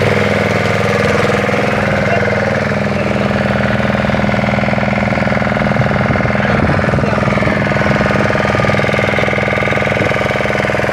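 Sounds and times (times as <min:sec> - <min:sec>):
motorboat engine droning: 0:00.0 - 0:10.9.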